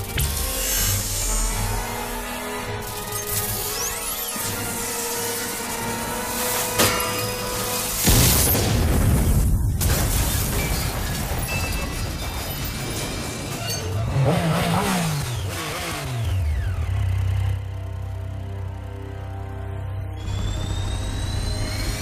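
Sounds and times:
low music drone: 0:00.0 - 0:08.2, 0:16.1 - 0:22.0
loud crash: 0:06.8 - 0:13.9
speeding vehicle: 0:12.9 - 0:19.6
motorcycle engine revving: 0:14.0 - 0:18.8.

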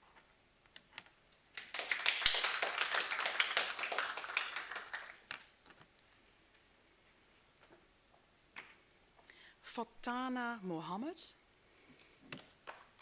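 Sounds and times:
small group clapping: 0:01.5 - 0:05.6, 0:12.4 - 0:13.0.

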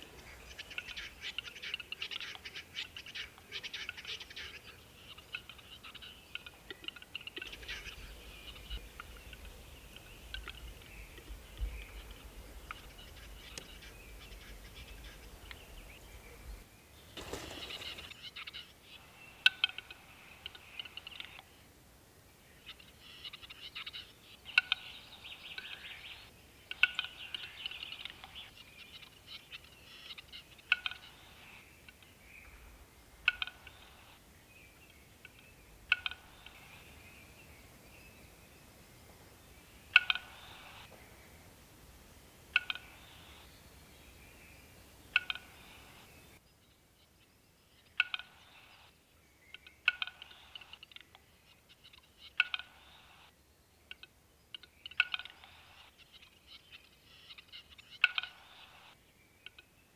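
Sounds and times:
bird dry scraping call: 0:17.2 - 0:18.5, 0:39.9 - 0:40.9, 0:57.1 - 0:59.0.

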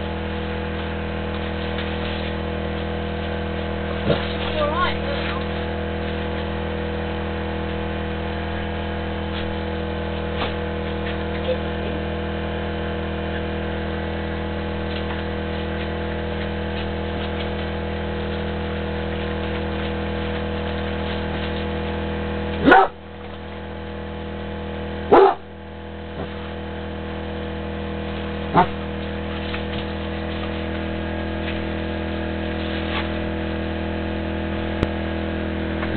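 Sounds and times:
mechanical hum: 0:00.0 - 0:35.9
dog barking: 0:22.6 - 0:23.0, 0:25.1 - 0:25.5, 0:28.5 - 0:28.8.

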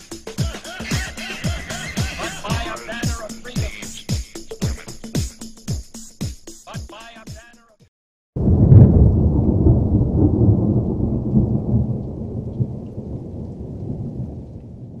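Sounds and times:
thunder crash and rumble: 0:08.4 - 0:15.0.

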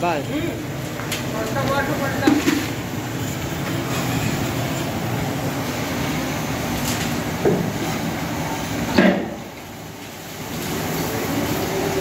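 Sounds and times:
washing machine churning: 0:00.0 - 0:12.0.

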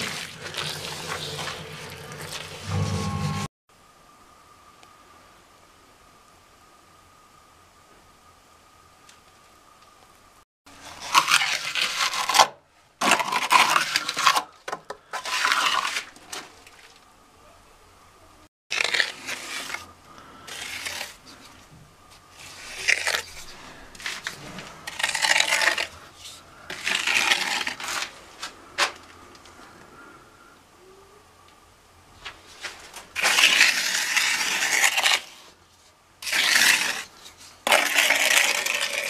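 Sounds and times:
trowel scraping wet mortar: 0:00.0 - 0:03.5, 0:10.8 - 0:14.5, 0:15.1 - 0:16.4, 0:18.7 - 0:21.5, 0:22.3 - 0:28.2, 0:33.2 - 0:35.5, 0:36.2 - 0:39.0.

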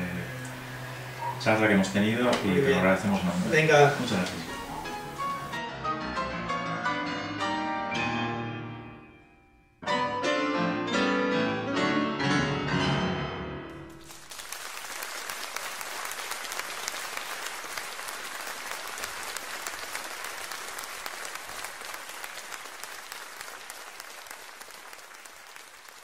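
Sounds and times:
audience applauding: 0:14.0 - 0:26.0.

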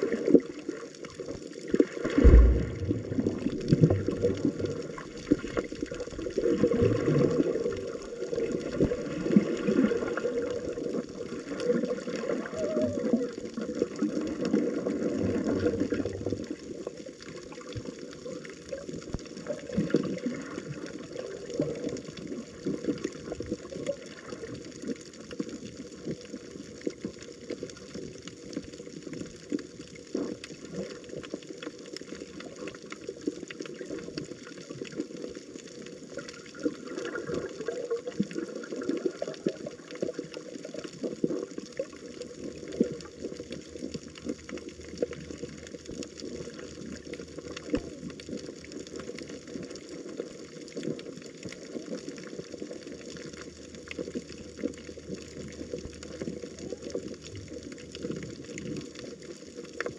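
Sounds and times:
water running and splashing: 0:00.0 - 0:59.9.

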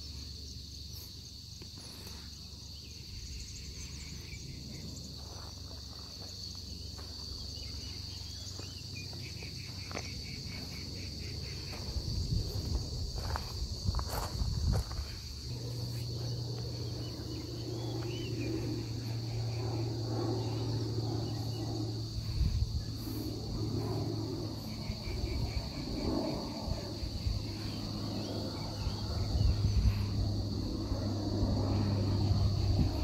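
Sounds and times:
insects singing: 0:00.0 - 0:33.0
low hum: 0:00.0 - 0:33.0.

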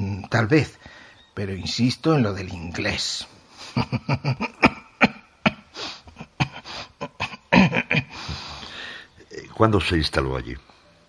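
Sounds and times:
soft chuckling laughter: 0:03.6 - 0:08.4.

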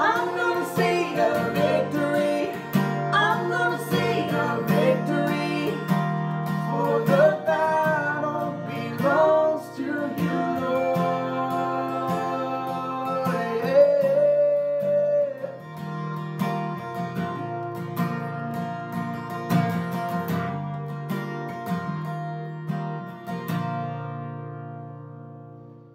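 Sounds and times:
man and woman singing: 0:00.0 - 0:15.6
acoustic guitar strumming: 0:00.0 - 0:25.9.

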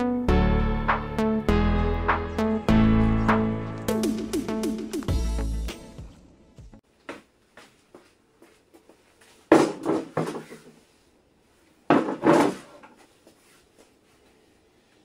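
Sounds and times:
wheel thumping on wooden table: 0:11.9 - 0:12.8.

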